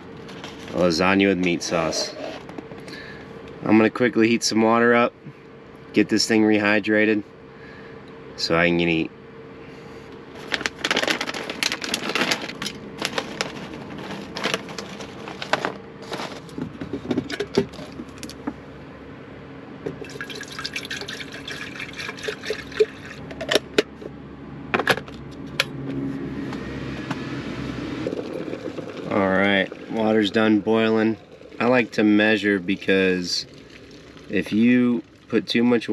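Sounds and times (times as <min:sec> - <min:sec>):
foil pouch crinkling: 0:10.4 - 0:16.6
water glugging into kettle: 0:20.0 - 0:23.2, 0:28.1 - 0:34.4.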